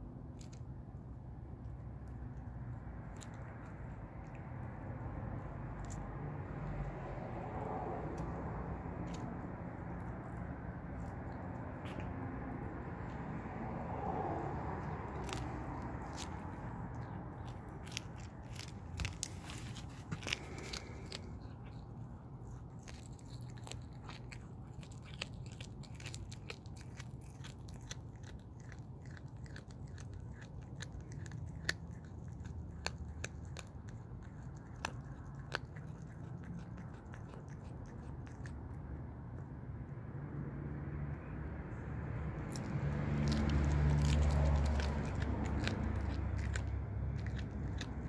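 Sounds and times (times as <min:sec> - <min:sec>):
low rumble: 0:00.0 - 0:28.4
cat crunching on a mouse: 0:00.0 - 0:39.9, 0:41.3 - 0:48.0.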